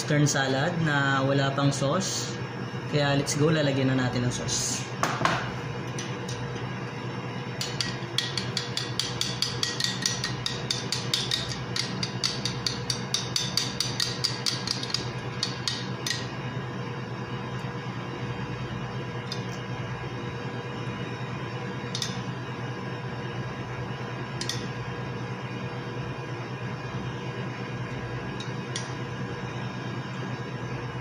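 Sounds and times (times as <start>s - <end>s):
utensil clinking against ceramic bowl: 7.6s - 16.2s.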